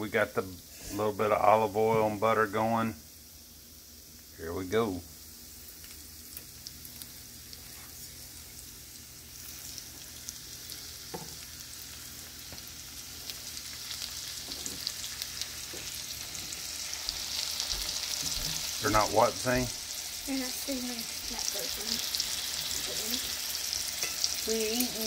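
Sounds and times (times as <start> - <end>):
meat sizzling in a skillet: 0.0 - 25.0.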